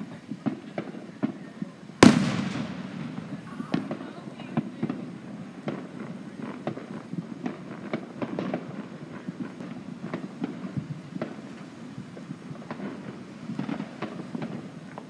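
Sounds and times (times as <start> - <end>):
distant fireworks popping and banging: 0.0 - 15.0
steady low rumble: 2.0 - 4.4.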